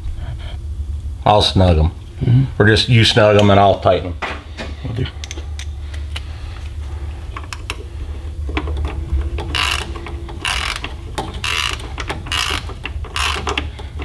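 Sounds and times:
steady low hum: 0.0s - 14.0s
ratchet wrench clicking: 9.4s - 14.0s.

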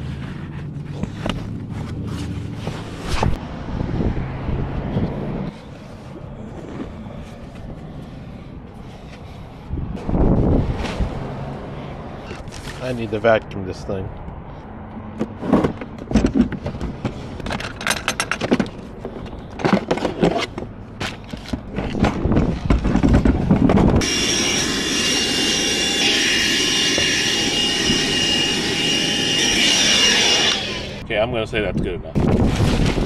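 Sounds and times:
knocks and rustles: 15.2s - 24.0s
handheld vacuum cleaner whining: 24.0s - 31.0s.

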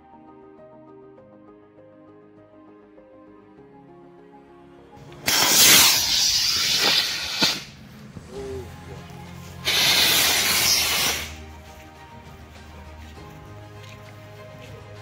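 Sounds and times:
sharp crack: 5.0s - 8.4s, 9.6s - 11.4s
rocket motor hissing: 5.2s - 8.3s, 9.6s - 11.4s.

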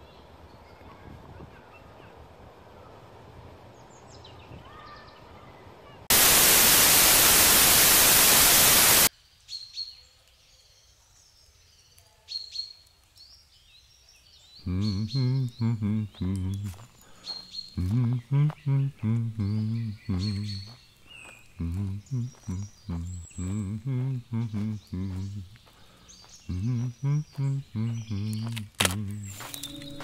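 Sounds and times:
outdoor ambience: 0.0s - 30.0s
static hiss: 6.1s - 9.1s
high bird chirps: 14.6s - 30.0s.

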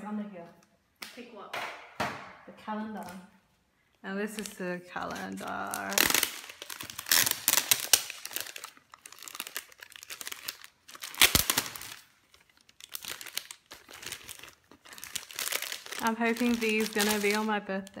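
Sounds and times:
plastic sleeve crinkling: 4.2s - 18.0s.

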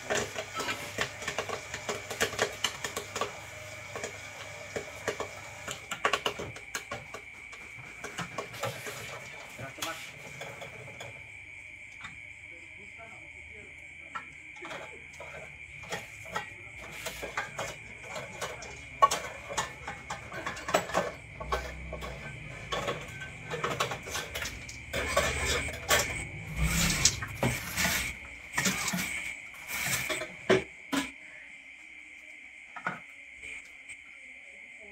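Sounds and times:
popcorn kernels popping: 0.0s - 7.2s.

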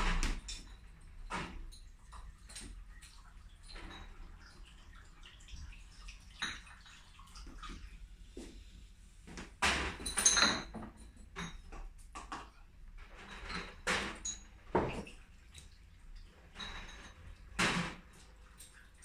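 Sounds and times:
water sloshing and splashing: 0.0s - 10.5s, 12.9s - 19.0s
glass bottles clinking: 6.4s - 6.7s, 9.9s - 11.9s, 13.2s - 15.1s, 16.5s - 17.9s.

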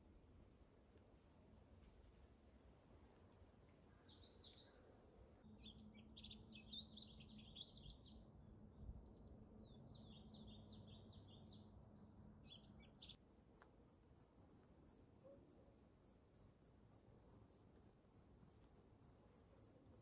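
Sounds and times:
songbird warbling chirps: 3.9s - 8.3s, 9.0s - 11.7s, 12.4s - 20.0s.

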